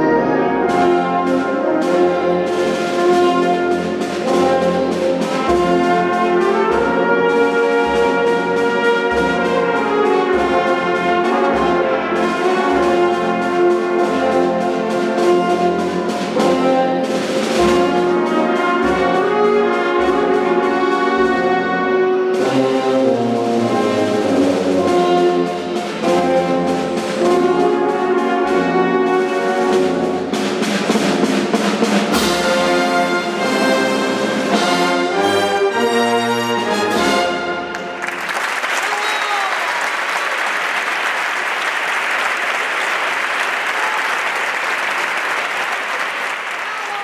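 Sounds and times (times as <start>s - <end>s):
wind band playing march: 0.0s - 47.0s
audience applause: 37.7s - 47.0s.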